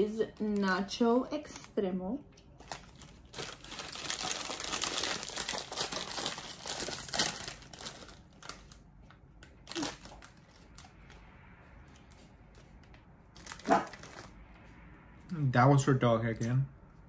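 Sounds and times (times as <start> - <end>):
foil chip bag crinkling: 2.5 - 11.0, 13.3 - 14.4.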